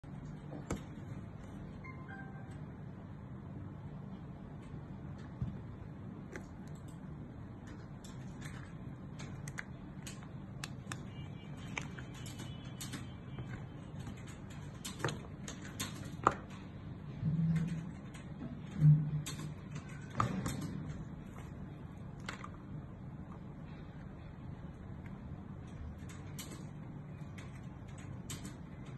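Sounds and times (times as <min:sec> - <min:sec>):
low steady hum: 0:00.0 - 0:28.9.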